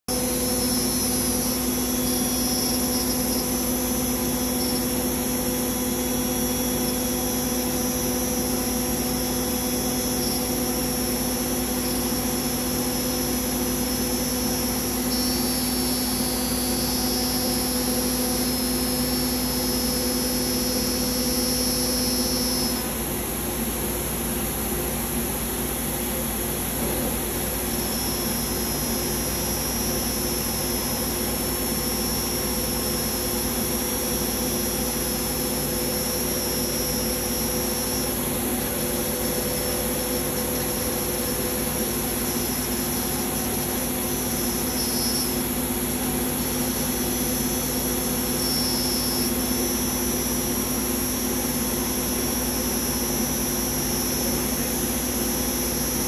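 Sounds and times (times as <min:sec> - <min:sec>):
router spindle whining: 0:00.1 - 0:22.9.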